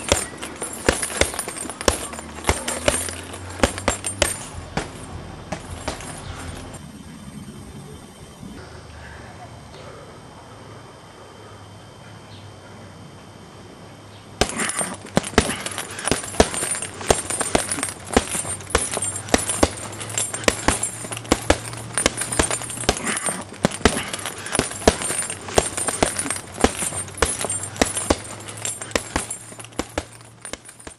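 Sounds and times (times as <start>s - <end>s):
punches on a punching bag: 0.0s - 6.6s, 14.4s - 30.9s.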